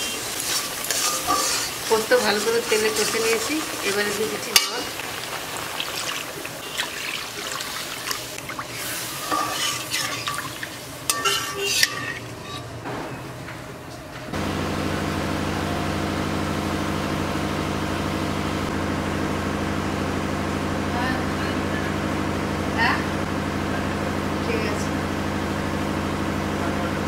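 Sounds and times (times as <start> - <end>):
spatula scraping pan: 0.0 - 12.8
water poured into hot paste: 2.6 - 10.9.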